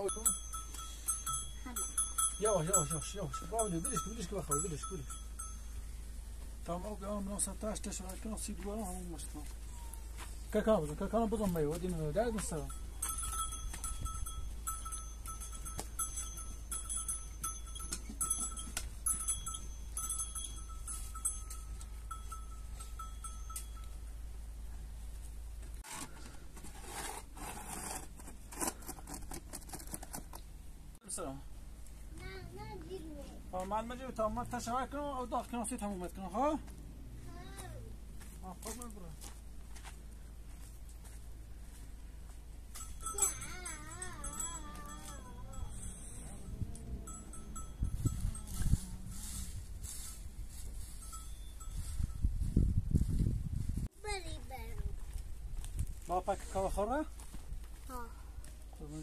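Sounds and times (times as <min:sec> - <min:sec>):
rustling and scraping handling: 0:00.0 - 0:24.0, 0:24.9 - 0:30.6, 0:47.0 - 0:58.8.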